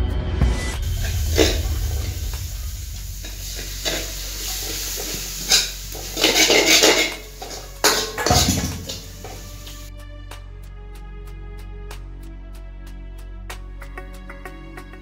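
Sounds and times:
onions sizzling in oil: 0:00.8 - 0:09.9
metal ladle scraping a pan: 0:00.9 - 0:09.9.

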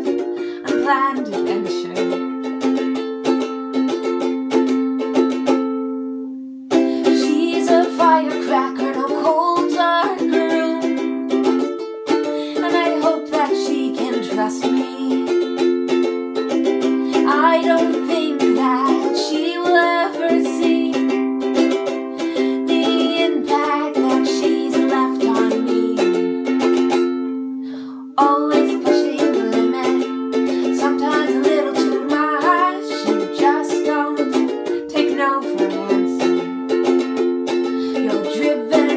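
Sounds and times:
woman singing: 0:00.0 - 0:02.6, 0:06.8 - 0:11.6, 0:12.2 - 0:15.6, 0:16.8 - 0:26.6, 0:27.9 - 0:36.5, 0:37.6 - 0:38.9
ukulele strumming chords: 0:00.0 - 0:38.9.

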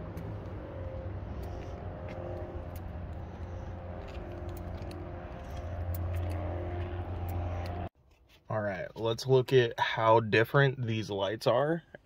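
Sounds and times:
car engine idling: 0:00.0 - 0:07.9.

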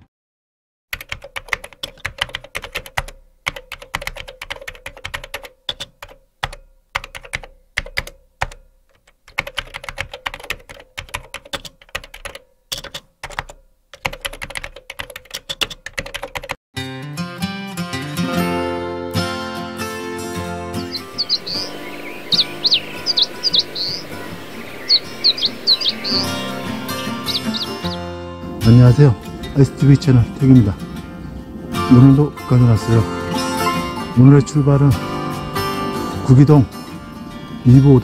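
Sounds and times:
keyboard typing clicks: 0:01.0 - 0:16.6
acoustic guitar music: 0:16.8 - 0:38.0.

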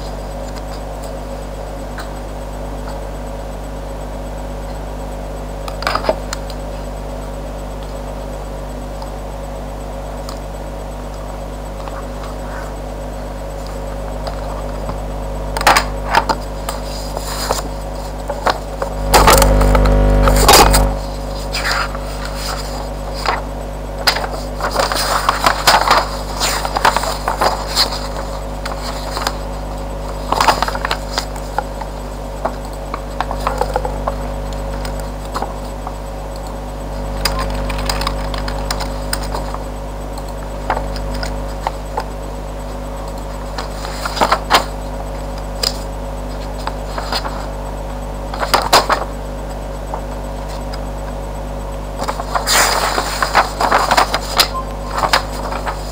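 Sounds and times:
low electrical hum: 0:00.0 - 0:55.9
paper rustling: 0:15.7 - 0:18.6, 0:20.2 - 0:29.5, 0:30.1 - 0:31.6, 0:43.6 - 0:44.8, 0:46.4 - 0:47.5, 0:48.3 - 0:49.1, 0:52.0 - 0:55.9.

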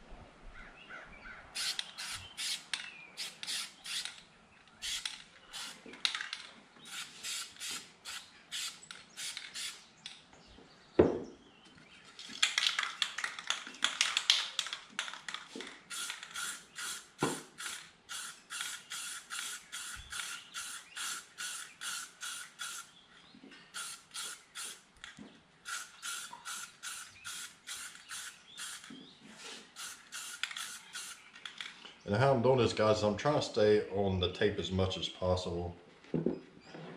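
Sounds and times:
spray can ball rattling: 0:01.6 - 0:04.1, 0:12.2 - 0:22.9, 0:23.7 - 0:24.8, 0:25.6 - 0:29.0, 0:29.8 - 0:31.7.

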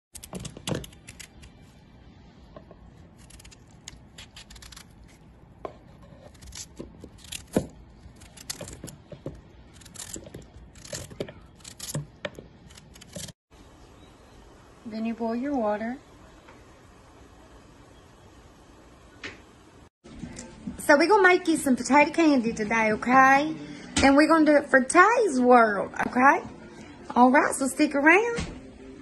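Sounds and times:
knife cutting potatoes: 0:03.0 - 0:13.3.

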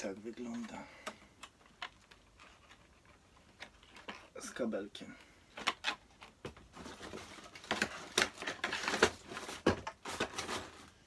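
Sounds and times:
plastic packaging crinkling: 0:06.8 - 0:11.0.

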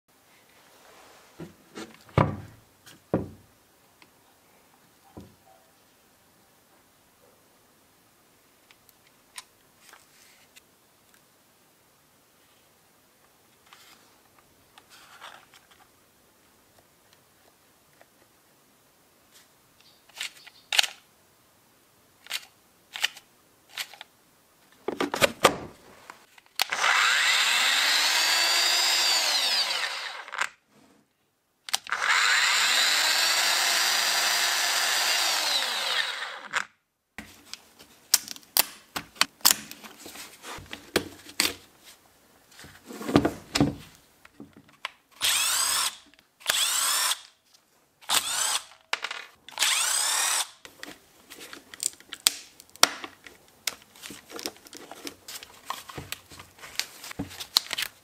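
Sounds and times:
electric power tool motor: 0:26.6 - 0:30.4, 0:31.8 - 0:36.6, 0:45.2 - 0:47.2, 0:48.1 - 0:48.8, 0:49.5 - 0:50.6.

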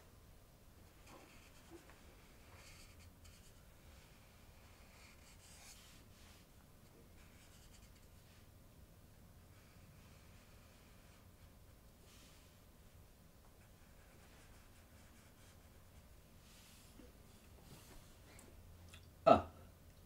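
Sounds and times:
marker scratching on paper: 0:01.0 - 0:06.4, 0:07.2 - 0:08.1, 0:13.6 - 0:15.8.

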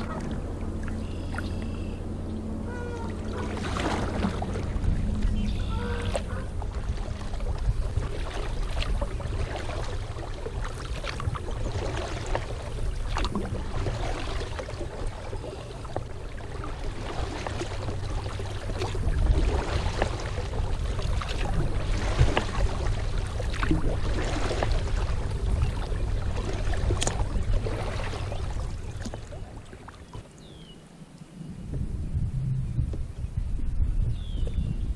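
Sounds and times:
steady low rumble: 0:00.0 - 0:30.0, 0:31.0 - 0:34.9
water splashing and dripping: 0:02.7 - 0:30.3
kayak paddle strokes: 0:02.7 - 0:30.4.

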